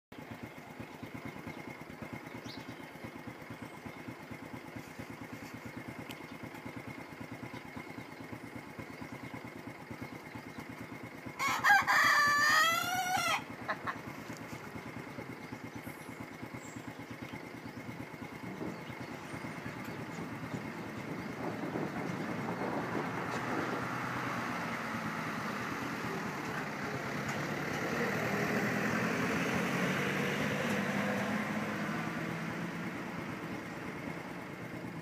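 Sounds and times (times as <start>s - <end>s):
engine idling with fast chugging: 0.1s - 23.8s, 30.3s - 35.0s
rooster crowing: 11.4s - 13.9s.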